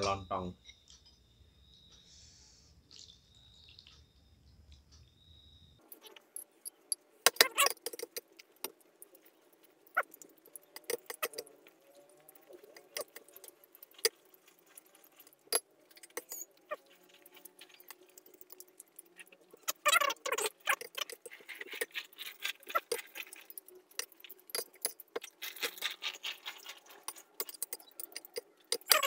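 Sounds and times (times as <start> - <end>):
cutlery clinking against a bowl: 22.6 - 29.0.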